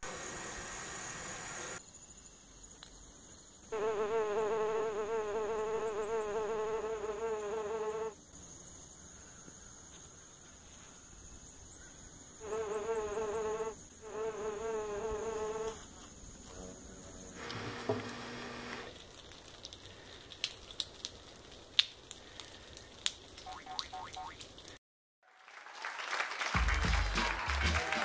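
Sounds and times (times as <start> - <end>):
wasp buzzing: 3.7 - 8.2, 12.4 - 15.8, 17.3 - 18.9.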